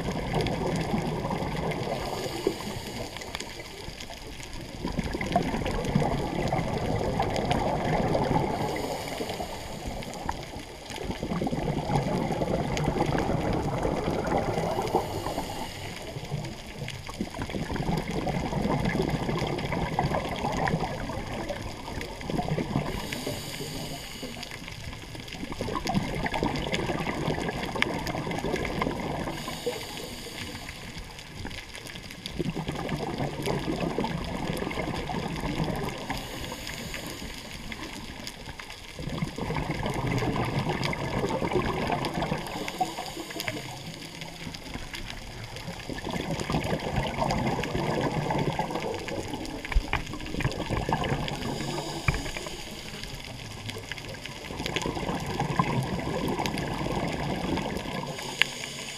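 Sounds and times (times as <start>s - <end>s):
exhaled bubbles underwater: 0.0s - 58.9s
regulator inhalation hiss: 2.0s - 3.3s, 8.6s - 10.3s, 14.8s - 16.2s, 22.9s - 24.6s, 29.4s - 31.0s, 36.1s - 37.6s, 42.4s - 44.0s, 51.4s - 53.2s, 58.0s - 58.9s.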